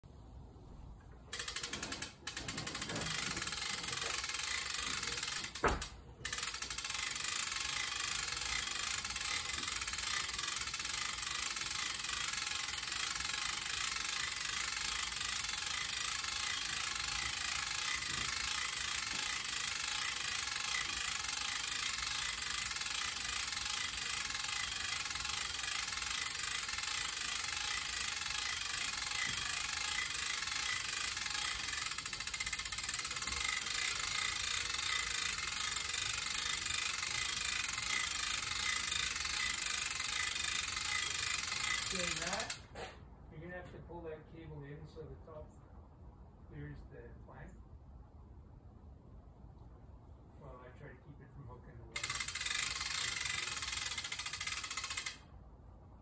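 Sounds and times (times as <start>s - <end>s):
winch running: 1.1s - 42.6s, 52.0s - 55.2s.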